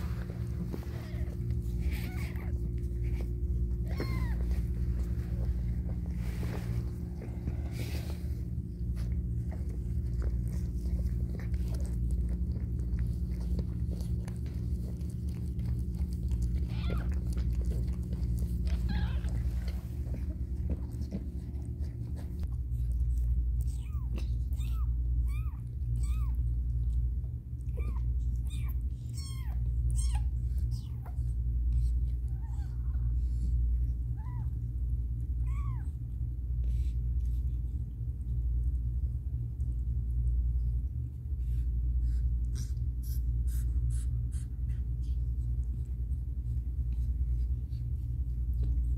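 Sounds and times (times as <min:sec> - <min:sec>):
steady low hum: 0:00.0 - 0:48.9
kitten mewing: 0:00.9 - 0:04.8, 0:16.2 - 0:20.4, 0:23.7 - 0:26.4, 0:27.8 - 0:31.2, 0:35.4 - 0:36.0.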